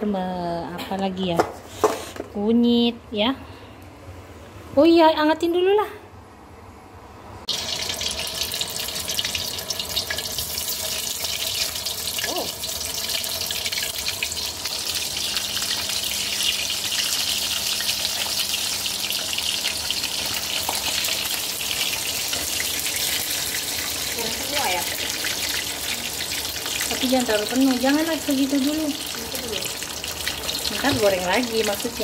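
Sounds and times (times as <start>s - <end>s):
chicken sizzling in hot oil: 7.5s - 32.0s.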